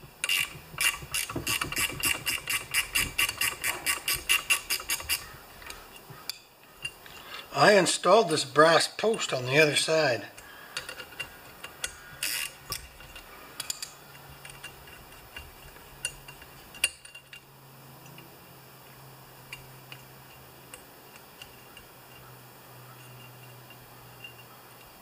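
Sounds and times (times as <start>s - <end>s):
small metal clicks and clinks: 10.4s - 18.3s, 23.0s - 25.0s.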